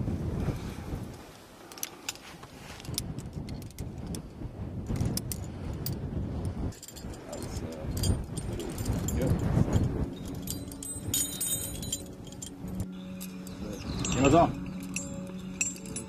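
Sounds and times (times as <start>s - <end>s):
metal carabiners clinking: 1.6s - 4.2s, 6.7s - 16.0s.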